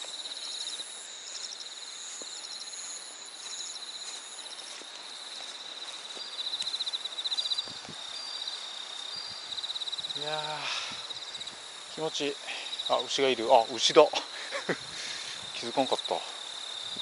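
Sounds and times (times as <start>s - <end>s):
short insect chirps: 0.0s - 13.2s
insects trilling: 0.0s - 17.0s.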